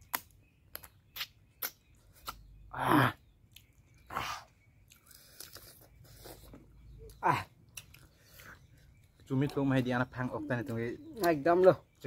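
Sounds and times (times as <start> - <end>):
wet chewing and lip smacks: 3.3 - 9.6.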